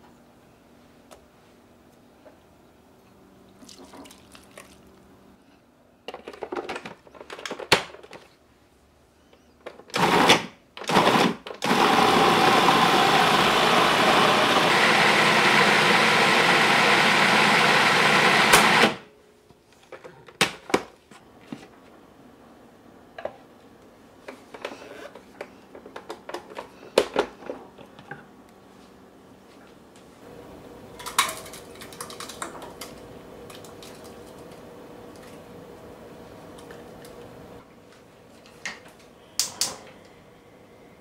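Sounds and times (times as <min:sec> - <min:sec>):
food processor pureeing: 0:10.0 - 0:19.0.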